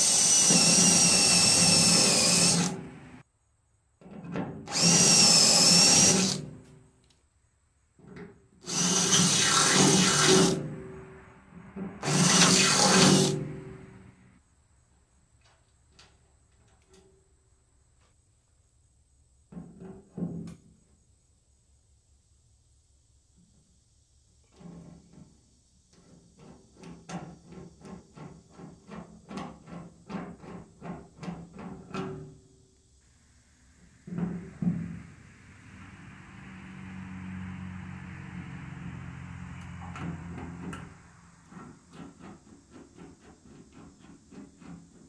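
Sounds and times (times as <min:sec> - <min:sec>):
cordless drill drilling metal: 0:00.0 - 0:03.2, 0:04.7 - 0:06.6, 0:08.6 - 0:10.8, 0:12.0 - 0:13.8.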